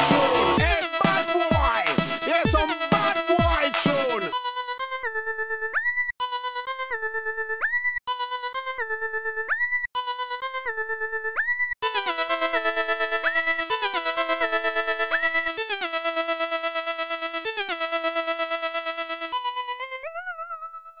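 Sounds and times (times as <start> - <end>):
pulsing synthesizer lead: 0.0 - 4.4.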